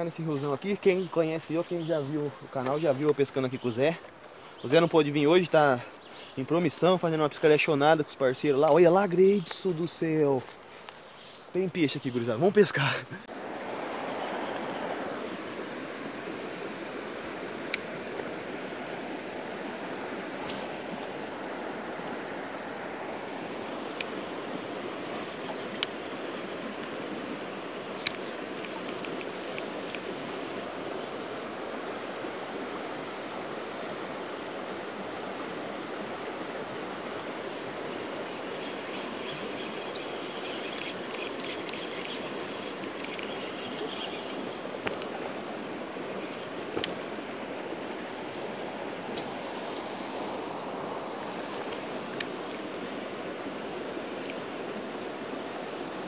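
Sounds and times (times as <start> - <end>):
flowing river water: 0.0 - 56.0
light clicks: 28.0 - 30.0, 40.7 - 43.4.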